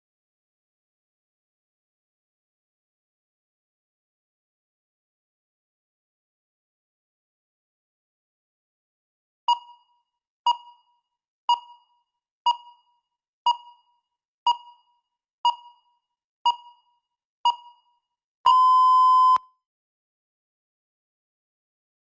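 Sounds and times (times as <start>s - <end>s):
short timer beeps: 9.5s - 9.9s, 18.5s - 19.5s
long timer beep: 18.5s - 19.5s.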